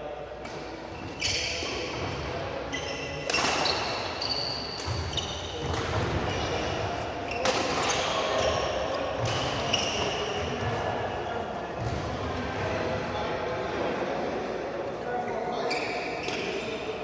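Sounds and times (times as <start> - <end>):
racket striking shuttlecock: 3.2 - 4.1.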